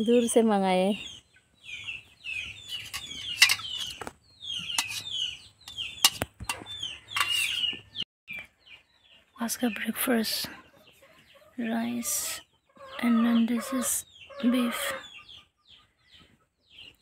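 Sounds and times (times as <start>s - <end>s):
chickens calling: 0.1s - 17.0s
spoon clinking on steel plate: 4.8s - 5.1s.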